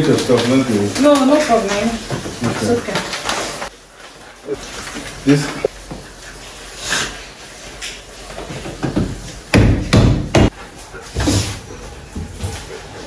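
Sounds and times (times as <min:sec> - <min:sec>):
kitchen goods knocking on counter: 0:08.8 - 0:10.5.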